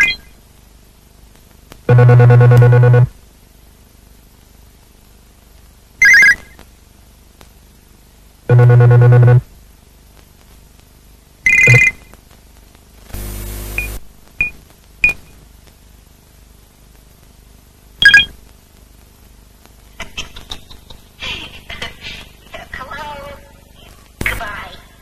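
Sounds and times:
low buzzing tone: 1.9s - 3.2s, 8.5s - 9.5s, 13.1s - 14.1s
short electronic beeps: 11.5s - 12.0s, 18.0s - 18.3s.

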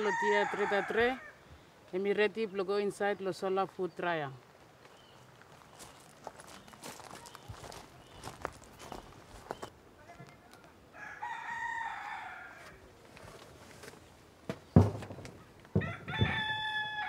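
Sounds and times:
rooster crowing: 0.0s - 1.4s, 10.9s - 12.8s, 15.8s - 17.0s
tray knocking on wood: 14.5s - 16.6s.

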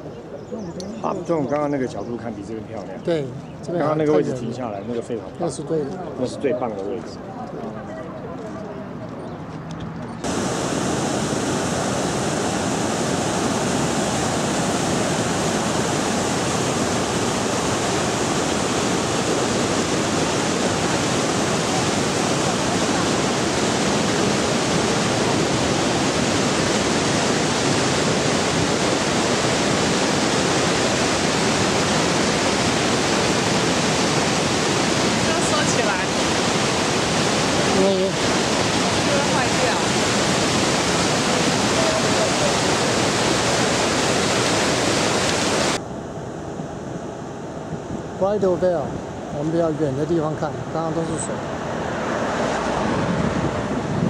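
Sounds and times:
waterfall rushing: 10.2s - 45.8s.

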